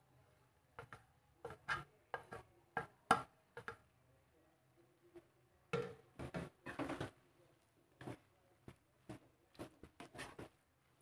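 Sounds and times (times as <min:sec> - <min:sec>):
spatula scraping wok: 0:09.6 - 0:10.6.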